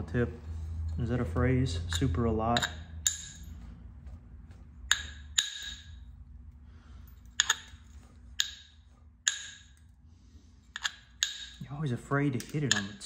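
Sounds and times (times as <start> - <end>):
knapping tool clicking on stone: 7.3 - 7.8.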